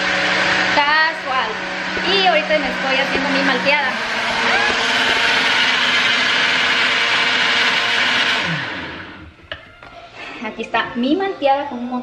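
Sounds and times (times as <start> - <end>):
blender motor running: 0.0 - 9.4.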